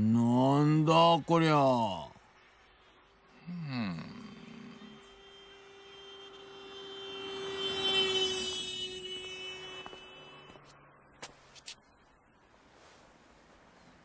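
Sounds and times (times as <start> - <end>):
droning hum: 2.4 - 11.1
high whine: 3.3 - 11.0.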